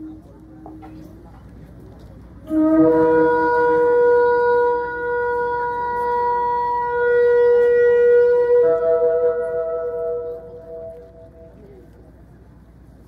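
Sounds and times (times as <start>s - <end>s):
wind instruments holding chord: 2.4s - 11.8s.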